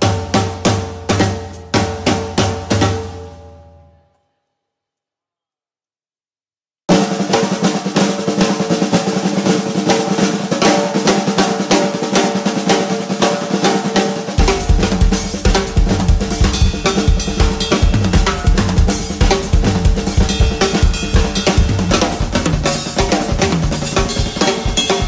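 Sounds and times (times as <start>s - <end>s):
fast drum kit playing: 0.0s - 3.5s, 6.9s - 25.0s
heavy bass drum strokes: 14.2s - 25.0s.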